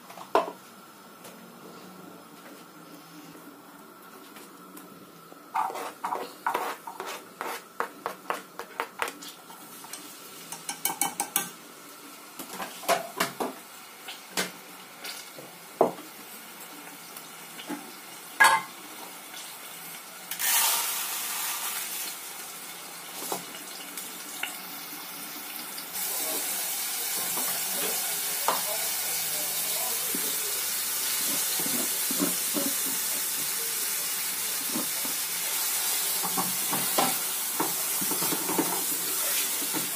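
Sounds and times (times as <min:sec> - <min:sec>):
knife tapping and scraping: 0:05.6 - 0:09.2
onion sizzling in hot oil: 0:09.2 - 0:39.9.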